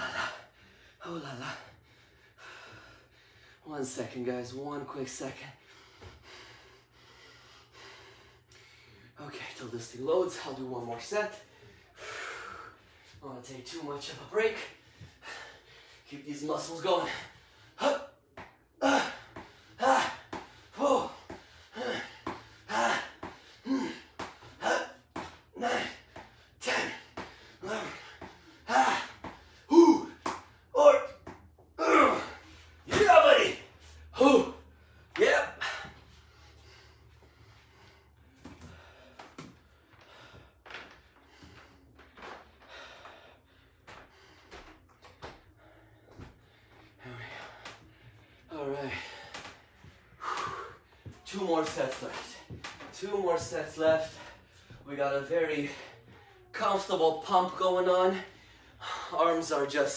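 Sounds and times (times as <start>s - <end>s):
man breathing hard: 0.0s - 3.7s, 5.4s - 9.2s, 11.4s - 13.2s, 14.6s - 16.2s, 16.9s - 30.8s, 33.7s - 51.3s, 53.9s - 54.9s, 58.0s - 59.3s
man breathing and sniffing: 34.7s - 51.2s.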